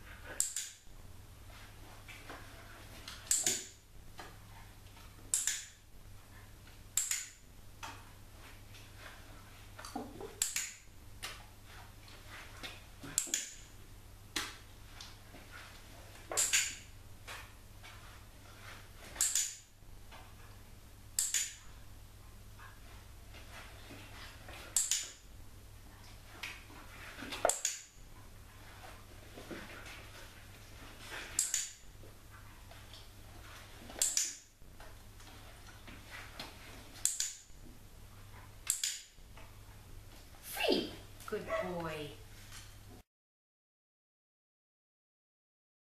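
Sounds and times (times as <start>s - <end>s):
dog-training clicker clicking: 24.8s - 25.2s, 38.6s - 39.1s.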